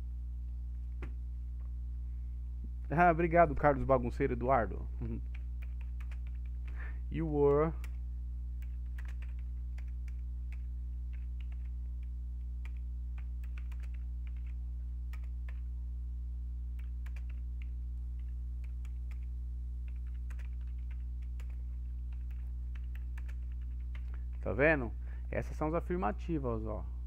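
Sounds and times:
low electrical hum: 0.0 - 27.0
typing on computer keyboard: 5.2 - 6.8, 8.6 - 15.6, 16.8 - 24.4.

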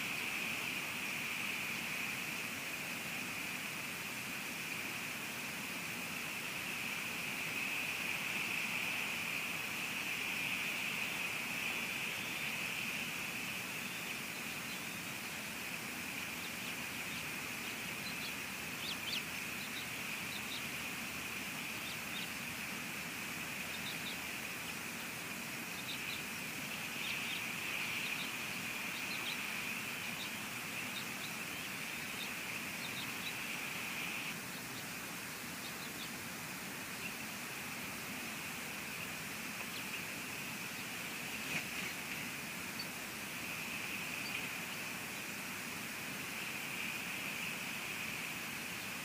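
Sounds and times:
rain hissing: 0.0 - 49.0
bird chirps: 10.4 - 22.6, 23.4 - 34.8, 38.9 - 45.4.

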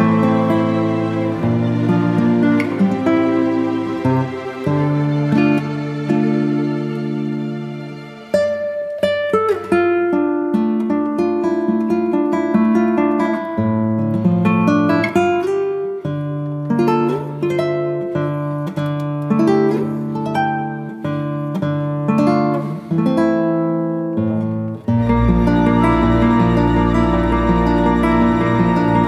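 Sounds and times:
plucked acoustic guitar melody: 0.0 - 29.0.

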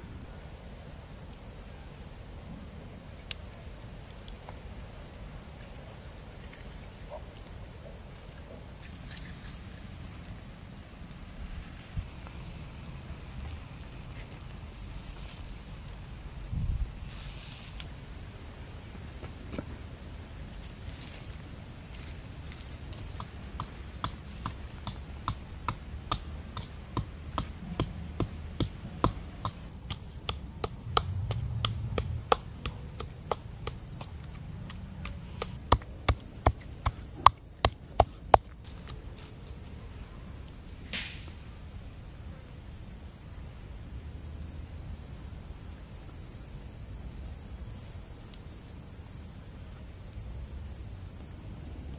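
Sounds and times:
high insect chorus: 0.0 - 51.9
pestle pounding in mortar: 23.2 - 38.5.

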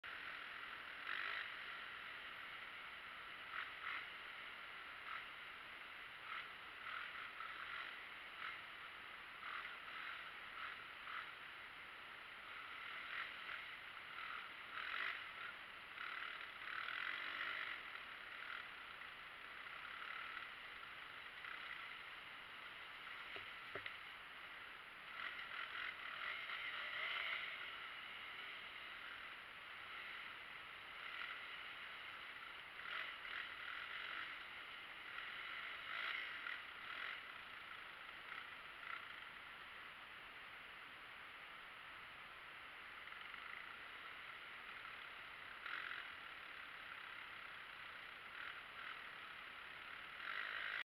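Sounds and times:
dirt bike riding hiss: 25.0 - 39.3.

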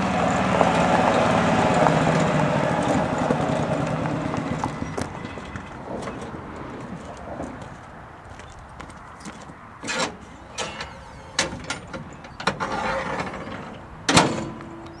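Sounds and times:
metal scraping: 9.8 - 14.6
metal cargo bed clanking: 9.8 - 14.8.

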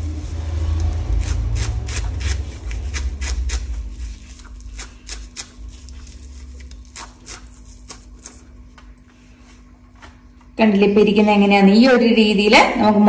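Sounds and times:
low rumble: 0.0 - 6.8
knife slicing through leaves: 0.1 - 8.5.

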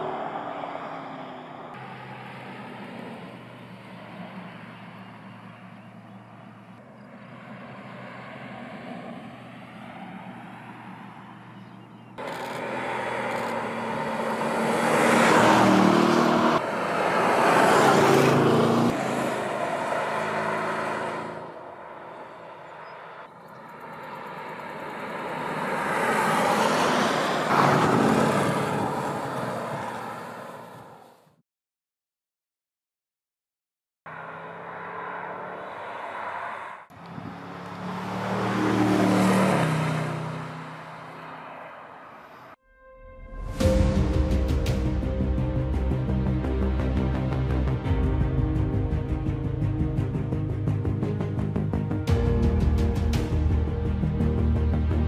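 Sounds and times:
car engine driving by: 0.0 - 31.0, 34.1 - 42.4.

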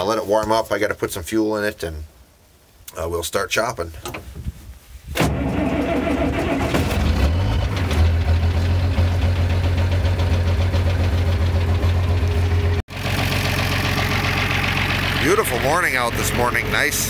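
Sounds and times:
tractor diesel engine idling: 7.3 - 17.0.

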